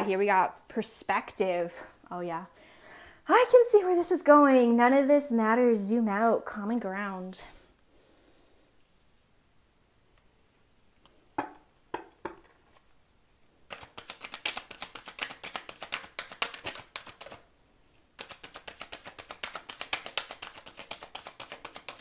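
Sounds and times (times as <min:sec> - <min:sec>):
cards flicking while shuffled: 0:13.7 - 0:17.5, 0:18.2 - 0:22.0.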